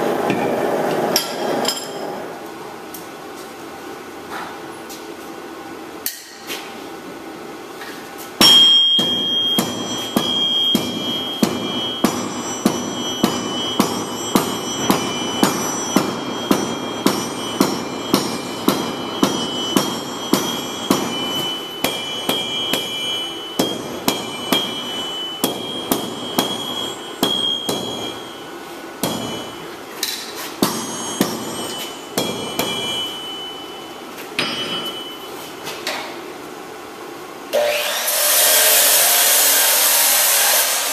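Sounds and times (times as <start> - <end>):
hammer ringing on anvil: 0.3 - 2.2, 8.4 - 36.2.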